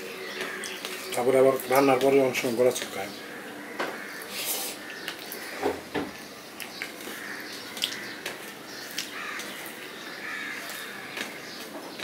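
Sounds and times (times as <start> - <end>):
person chewing: 6.6 - 9.8.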